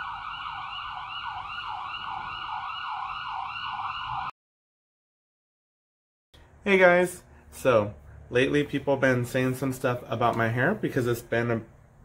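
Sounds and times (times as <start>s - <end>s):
emergency siren wailing: 0.0s - 4.4s.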